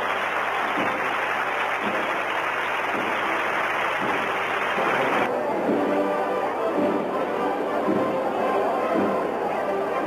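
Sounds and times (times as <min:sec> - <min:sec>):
crowd cheering and clapping: 0:00.0 - 0:05.3.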